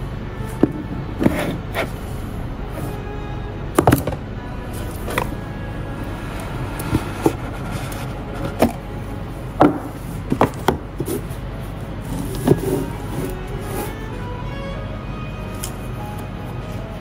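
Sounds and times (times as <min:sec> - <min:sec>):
cardboard box rubbing: 0:01.1 - 0:03.0, 0:06.8 - 0:08.9.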